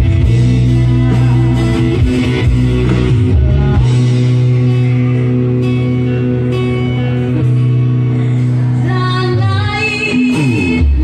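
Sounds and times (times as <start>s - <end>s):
electric guitar and bass chord: 0.0s - 11.0s
woman singing: 3.1s - 4.3s, 8.6s - 11.0s.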